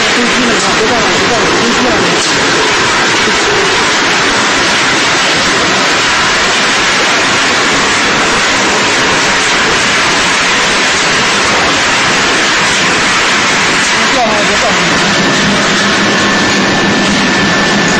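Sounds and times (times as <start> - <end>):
production line machinery rushing: 0.0 - 17.9.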